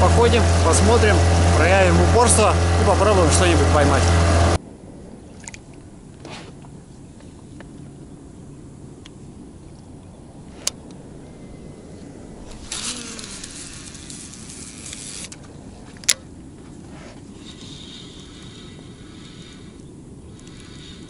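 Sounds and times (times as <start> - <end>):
reel spool whirring: 0.0 - 4.6, 12.1 - 21.0
wind rushing: 0.0 - 6.1, 10.2 - 14.9
fishing reel click: 12.5 - 16.2, 17.4 - 21.0.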